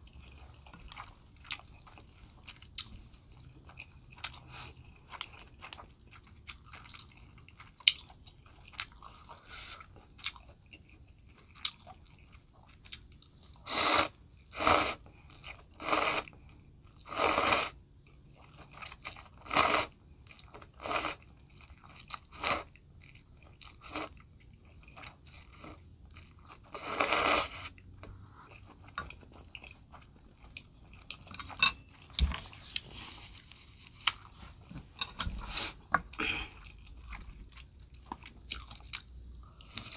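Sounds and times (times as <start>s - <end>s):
soft chewing and mouth clicks: 0.0s - 17.0s, 17.8s - 39.9s
loud noodle slurps: 13.6s - 15.0s, 15.8s - 16.3s, 17.1s - 17.8s, 19.4s - 19.9s, 26.7s - 27.8s.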